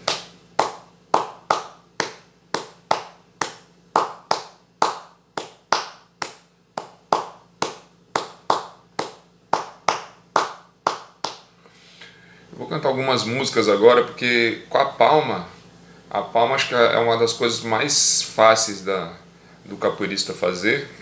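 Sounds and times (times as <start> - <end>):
hand clapping in rhythm: 0.0 - 11.5.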